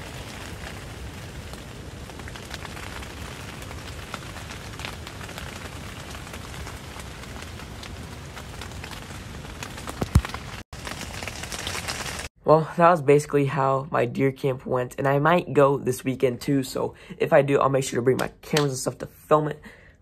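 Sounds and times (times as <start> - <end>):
rain pattering on fabric: 0.0 - 12.3.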